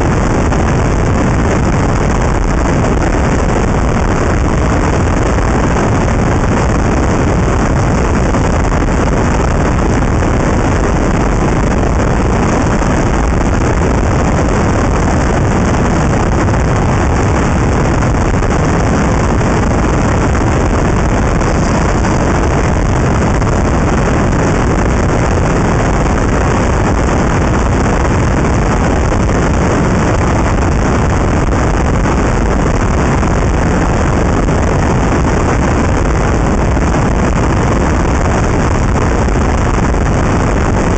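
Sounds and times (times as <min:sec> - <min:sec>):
wind buffeting microphone: 0:00.0 - 0:40.9
road noise: 0:11.0 - 0:30.0.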